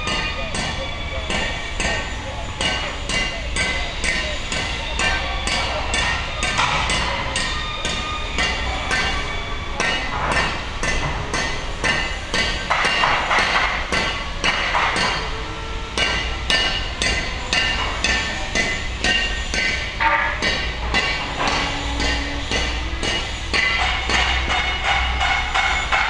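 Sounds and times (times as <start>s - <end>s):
hammer striking steel: 0.0s - 26.0s.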